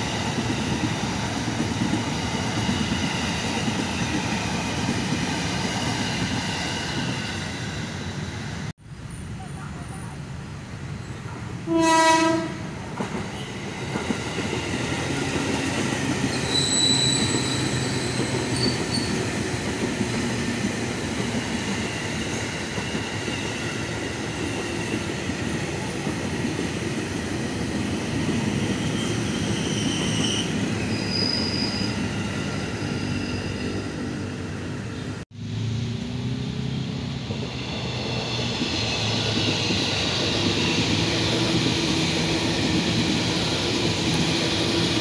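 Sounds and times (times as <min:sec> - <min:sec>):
train wheels rumbling on rails: 0:00.0 - 0:08.7, 0:09.3 - 0:45.0
train horn blast: 0:11.6 - 0:12.7
high wheel squeals: 0:16.3 - 0:19.3, 0:28.4 - 0:33.8.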